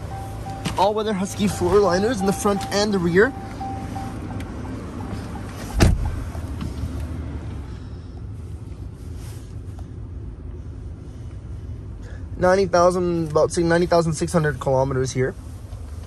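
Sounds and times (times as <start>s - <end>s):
car engine idling: 0.0s - 16.0s
loud thump: 5.8s - 6.2s.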